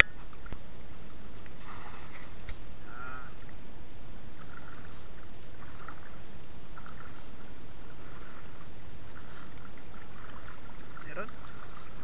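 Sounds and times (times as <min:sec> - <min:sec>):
shallow water sloshing: 0:00.0 - 0:12.0
soft splashes: 0:00.0 - 0:12.0
steady low noise: 0:00.1 - 0:12.0.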